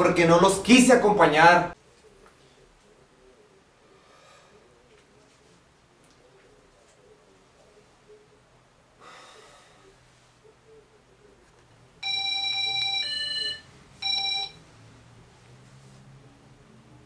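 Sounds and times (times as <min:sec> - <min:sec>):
electronic three-note ringing tone: 0:12.0 - 0:14.6.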